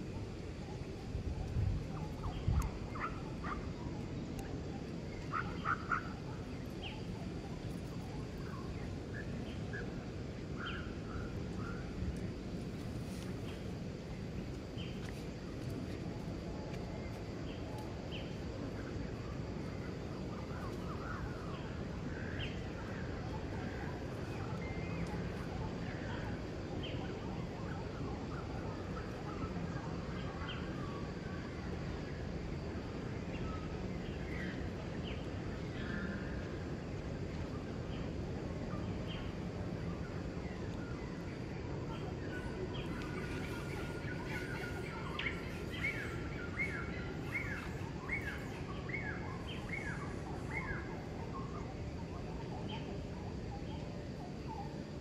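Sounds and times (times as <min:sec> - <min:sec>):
outdoor background noise: 0:00.0 - 0:55.0
steady background hiss: 0:00.0 - 0:55.0
faint calls: 0:01.7 - 0:12.1.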